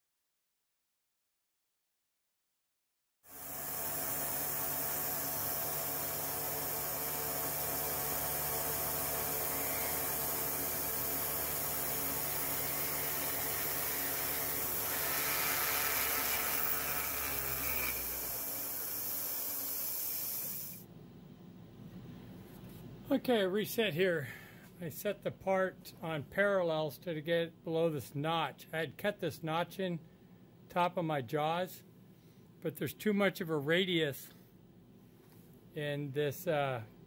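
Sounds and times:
milling machine cutting aluminium: 8.7 - 20.8.

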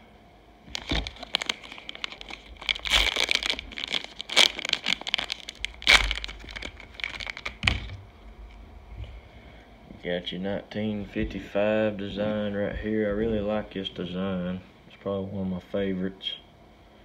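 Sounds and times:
plastic wrapper tearing and crinkling: 0.7 - 8.0.

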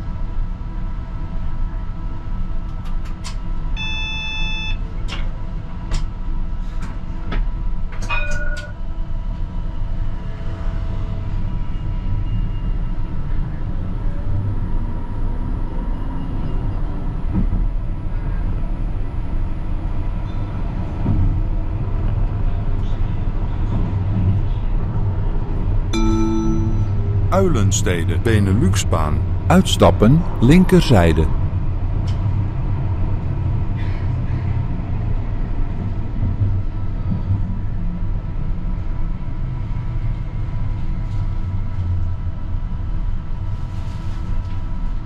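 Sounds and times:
short electronic beep: 26.0 - 31.3.

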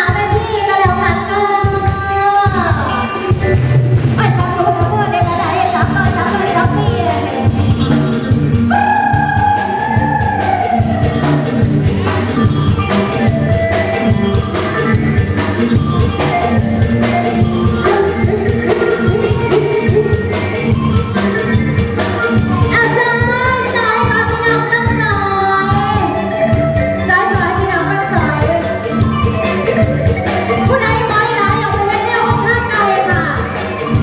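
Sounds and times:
woman singing into a microphone: 0.0 - 3.1, 4.2 - 7.5, 8.7 - 11.5, 17.7 - 20.7, 22.6 - 28.8, 30.5 - 33.6
drum kit beat: 0.0 - 34.0
live band music: 0.0 - 34.0.

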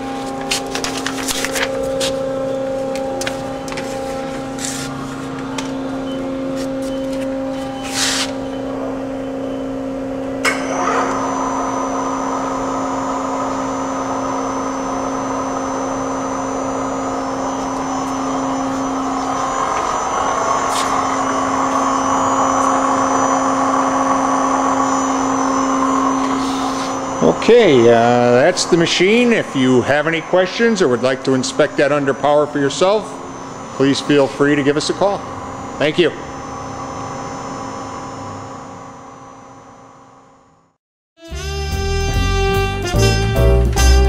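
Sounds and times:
machinery humming: 0.0 - 44.0
rushing noise with high whine: 10.5 - 38.9.

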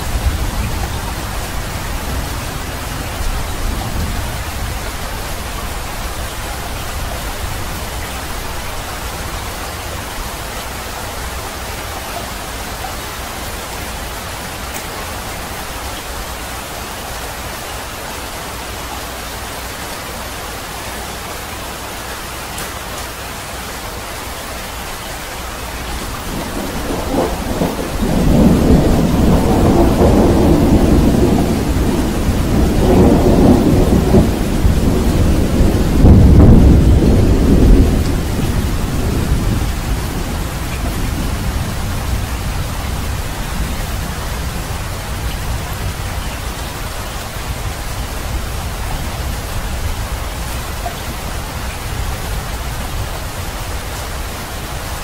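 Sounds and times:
steady rain falling: 0.0 - 55.0
thunder rolling: 25.8 - 53.3.

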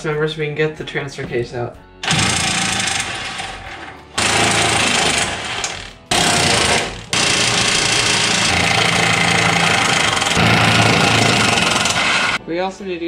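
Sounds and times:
impact wrench hammering: 2.0 - 12.4.

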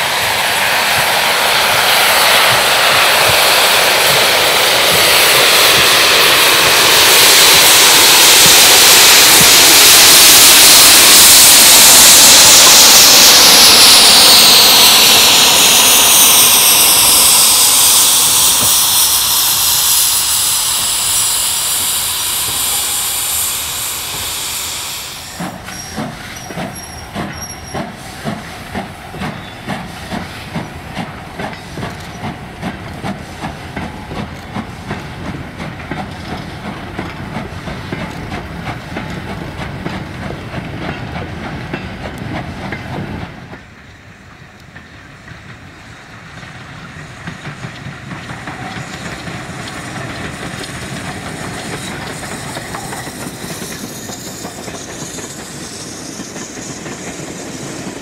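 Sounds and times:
steam hissing: 0.0 - 58.0
steam locomotive exhaust beats: 0.0 - 58.0
train wheels rumbling on rails: 0.0 - 58.0.

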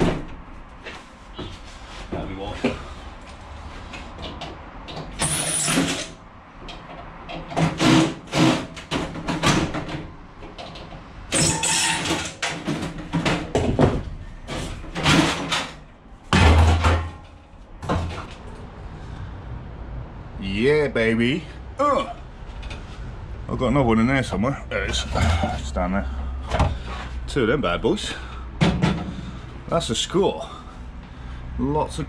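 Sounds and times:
metal parts clanking and rattling: 5.0 - 18.3.

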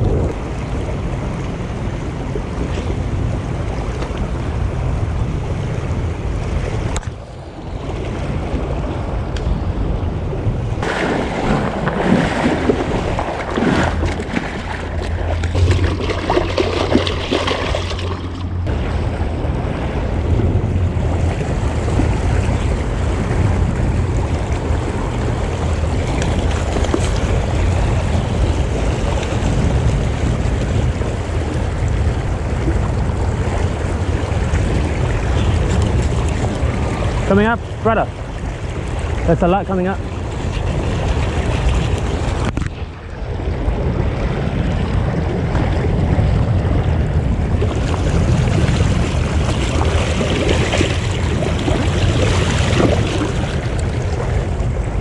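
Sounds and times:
wind buffeting microphone: 0.0 - 55.0
rushing creek water: 47.6 - 55.0.

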